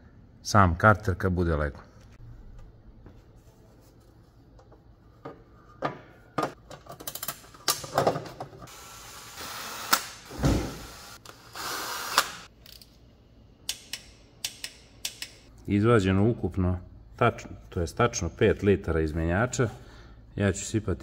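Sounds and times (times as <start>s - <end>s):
cordless drill running: 10.8s - 12.4s.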